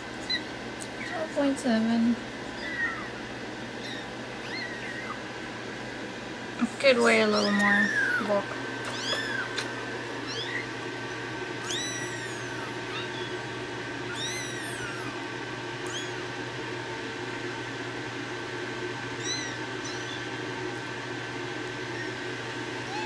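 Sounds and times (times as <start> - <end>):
steady low hum: 0.0 - 23.0
kittens mewing: 2.4 - 5.5, 7.1 - 16.4, 19.1 - 20.7, 21.8 - 23.0.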